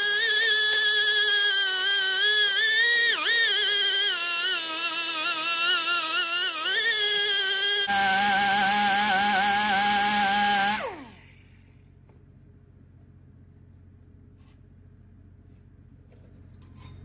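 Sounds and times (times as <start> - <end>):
angle grinder whine: 0.0 - 11.6.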